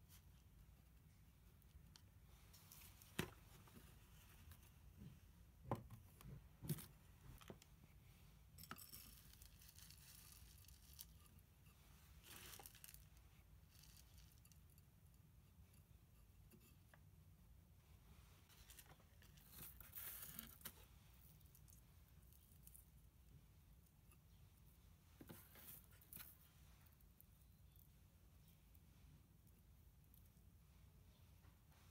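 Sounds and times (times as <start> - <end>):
potting mix crunching and rustling: 8.7 - 11.2, 11.9 - 13.1.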